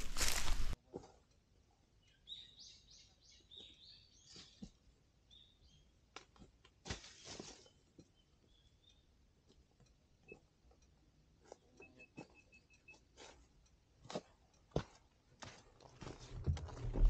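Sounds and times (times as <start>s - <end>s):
short rustle: 0.0s - 0.8s
faint bird chirping: 1.9s - 4.7s, 5.3s - 6.0s, 7.2s - 9.2s.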